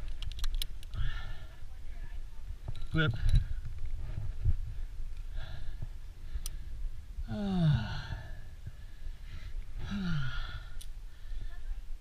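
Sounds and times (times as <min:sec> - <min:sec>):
carabiner metallic click: 0:00.1 - 0:01.0
person breathing: 0:00.9 - 0:01.8, 0:03.2 - 0:11.8.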